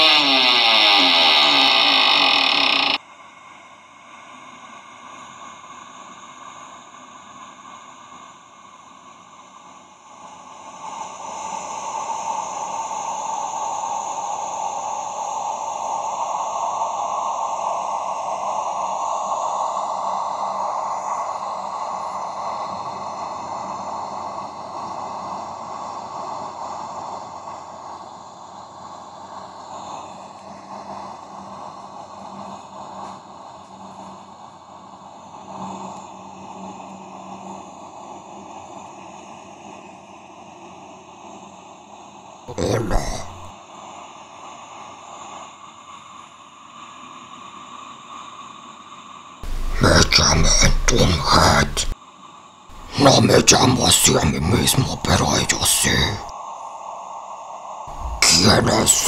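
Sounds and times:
faint low hum: 49.4s - 52.0s, 57.9s - 59.0s.

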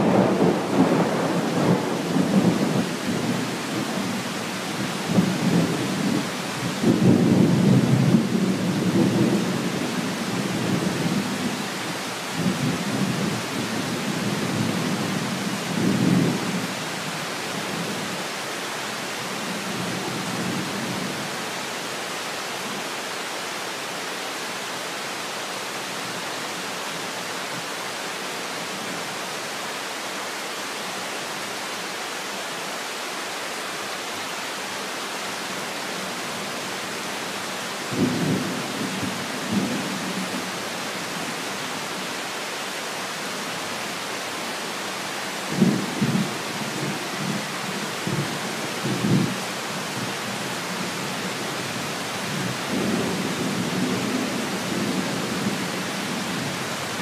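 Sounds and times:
thunder rumbling: 0.0s - 3.5s
steady rain: 0.0s - 57.0s.

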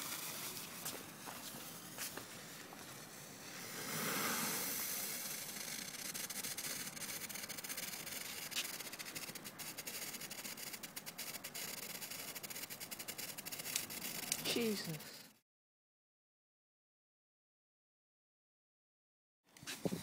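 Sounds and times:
fountain firework hissing: 0.0s - 14.5s
rapid crackling: 4.6s - 15.3s.

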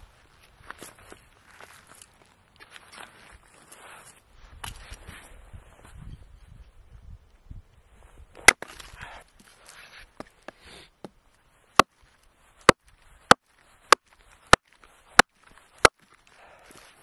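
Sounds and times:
rustle and crackle: 0.0s - 17.0s
axe chopping wood: 8.4s - 9.0s, 10.2s - 12.0s, 12.6s - 16.1s.

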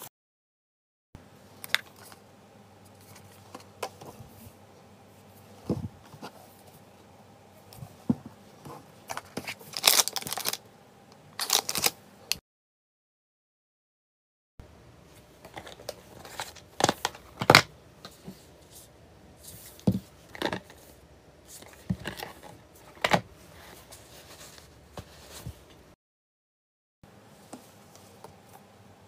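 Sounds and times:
packaging rustling: 9.1s - 10.6s, 11.4s - 12.0s.

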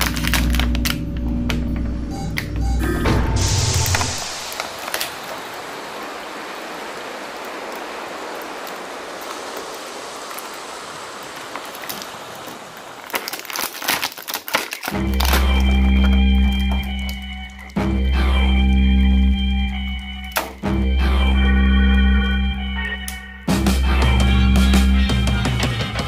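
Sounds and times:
plastic packaging rustling: 0.0s - 1.7s, 3.7s - 5.5s, 9.1s - 17.8s
guitar music: 15.0s - 26.0s.

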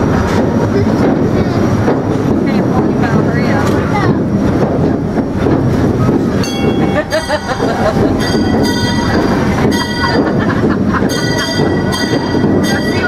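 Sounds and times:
steam train rumble: 0.0s - 13.0s
high metallic ringing: 6.4s - 13.0s.

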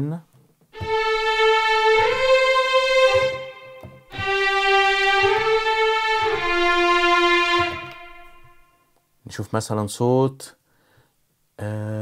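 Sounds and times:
violin section gliding legato notes: 0.8s - 8.8s.

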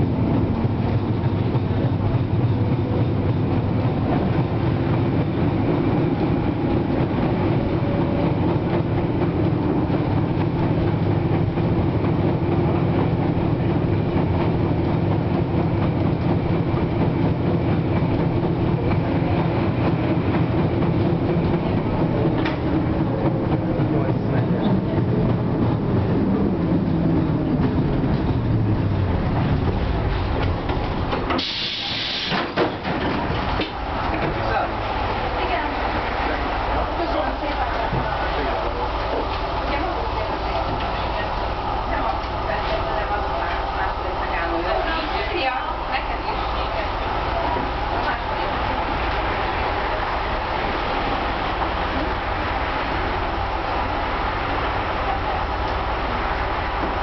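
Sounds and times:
tram wheels rumbling on rail: 0.0s - 57.0s
traction motors humming: 32.7s - 57.0s.

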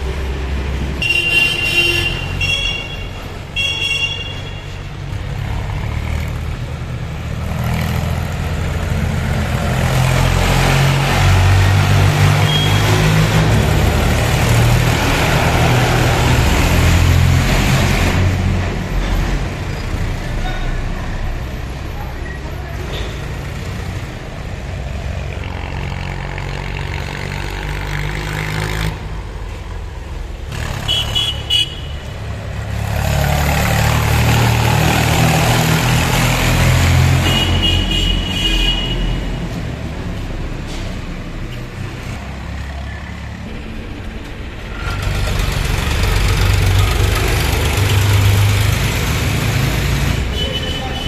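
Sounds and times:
tractor engines throbbing: 0.0s - 51.0s
vehicle horn toots: 1.0s - 4.7s, 12.4s - 13.0s, 30.8s - 32.1s, 37.2s - 39.2s, 50.3s - 51.0s.

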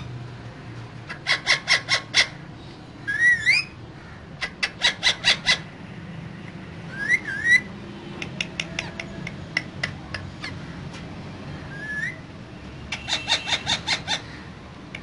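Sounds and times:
parakeet sharp calls: 1.0s - 5.8s, 6.9s - 9.0s, 12.9s - 14.5s.

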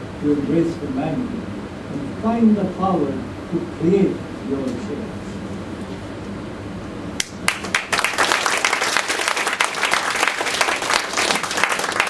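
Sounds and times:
audience applause: 7.5s - 12.0s.

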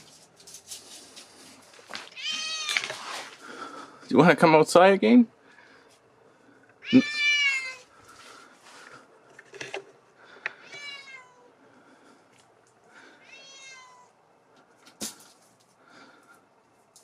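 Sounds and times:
cat meowing: 2.1s - 2.9s, 6.8s - 7.9s, 10.6s - 11.5s, 13.2s - 14.2s.

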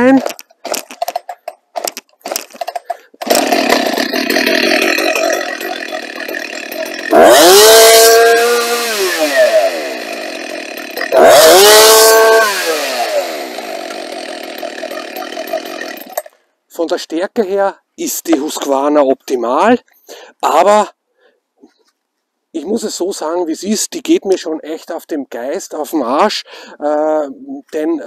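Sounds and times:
chainsaw idling and revving: 1.8s - 16.3s.

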